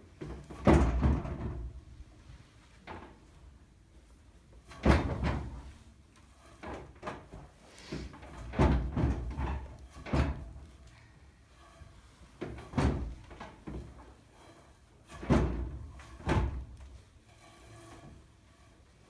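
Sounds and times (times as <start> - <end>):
soft thumps and rustling: 11.7 - 18.8.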